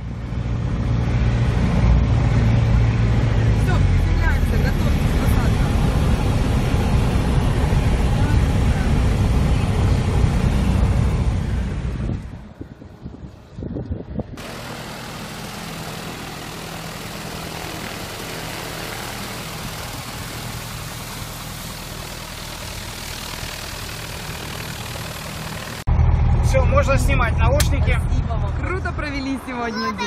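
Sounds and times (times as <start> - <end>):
light aircraft engine and propeller: 0.0 - 30.0
aircraft engine idling: 0.1 - 12.5, 14.4 - 26.4.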